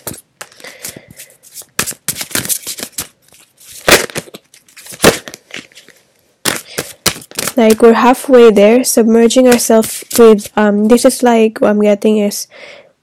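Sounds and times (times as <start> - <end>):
cards being shuffled: 0.0 - 8.0, 9.5 - 10.6
papery card snaps: 1.6 - 5.8, 6.4 - 7.8.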